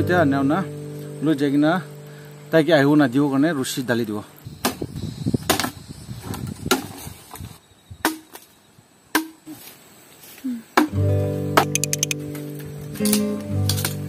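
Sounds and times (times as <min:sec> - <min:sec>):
machete chopping bamboo: 0:04.6 - 0:04.8, 0:05.5 - 0:05.8, 0:08.0 - 0:08.4, 0:09.1 - 0:09.6, 0:10.8 - 0:11.0
background music: 0:10.9 - 0:14.0.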